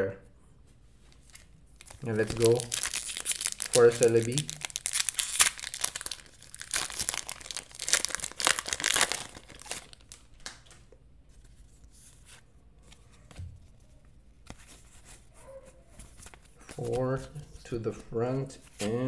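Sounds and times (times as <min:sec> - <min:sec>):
handling cards: 0:01.0 - 0:19.0
foil wrapper crinkling and tearing: 0:01.3 - 0:10.5.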